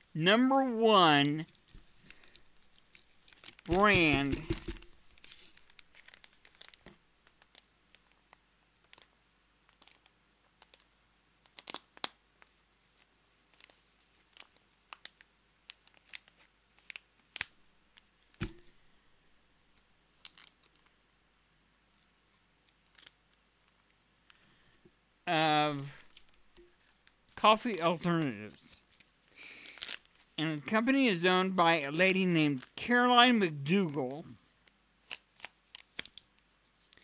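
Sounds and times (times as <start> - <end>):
pouch bag crinkling: 1.7 - 6.8
knock: 3.8 - 4.9.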